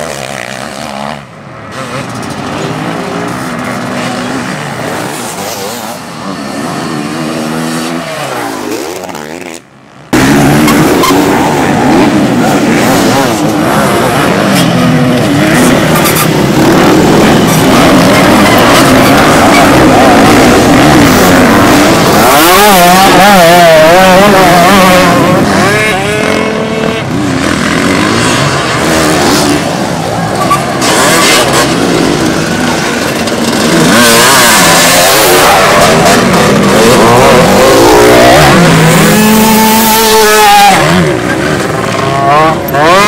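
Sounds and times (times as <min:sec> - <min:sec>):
dirt bike engines revving: 0:00.0 - 0:43.0.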